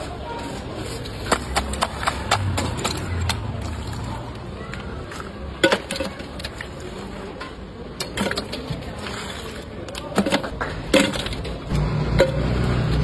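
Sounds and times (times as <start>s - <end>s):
ice clunking in metal cylinder: 5.6s - 12.6s.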